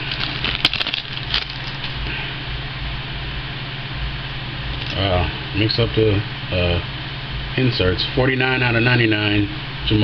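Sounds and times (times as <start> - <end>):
wrapper crackling: 0.0 - 2.1
low hum and hiss: 0.0 - 10.0.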